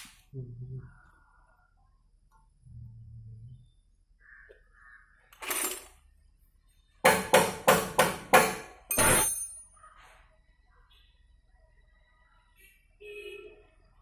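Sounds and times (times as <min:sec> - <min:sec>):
spanner striking metal: 0:07.1 - 0:09.7.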